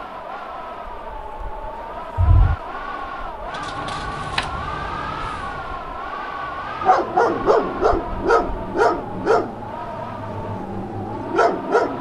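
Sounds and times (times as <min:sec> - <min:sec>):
steady wavering drone: 0:01.9 - 0:11.4
dog barking: 0:06.8 - 0:09.6, 0:11.2 - 0:12.0.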